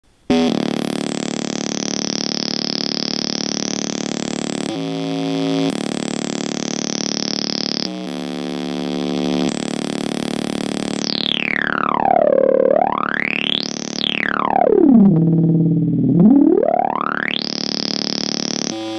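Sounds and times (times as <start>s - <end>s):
buzzy synthesizer tones: 0.3s - 18.9s
downward synth pitch sweep: 11.5s - 17.5s.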